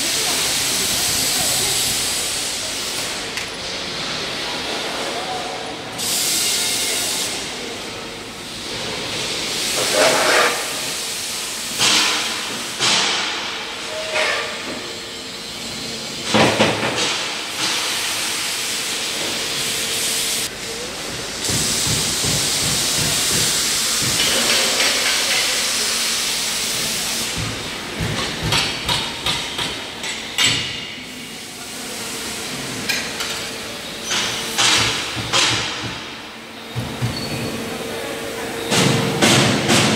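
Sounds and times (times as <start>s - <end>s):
crackling hiss of welding: 0.0s - 3.4s, 21.4s - 27.6s.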